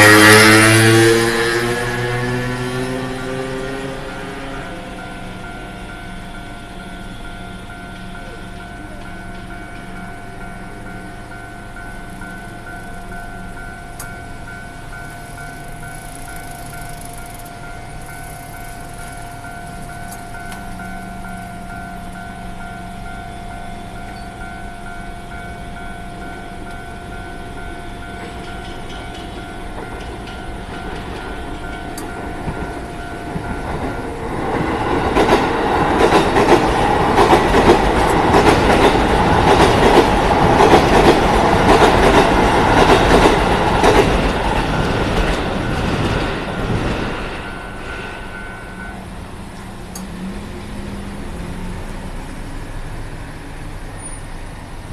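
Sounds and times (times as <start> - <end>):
level crossing warning bell: 0.0 - 51.3
train wheels clattering over rail joints: 26.5 - 50.3.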